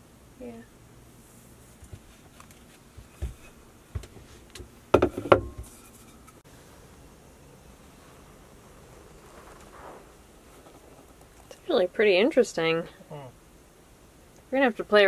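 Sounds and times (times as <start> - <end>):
clatter of wood on table: 5.0 - 6.0.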